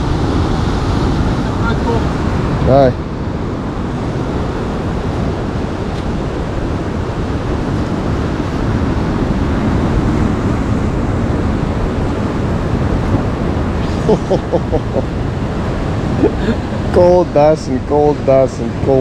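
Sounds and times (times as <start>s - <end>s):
low wind rumble on microphone: 0.0s - 19.0s
ocean surf on rocky shore: 0.0s - 19.0s.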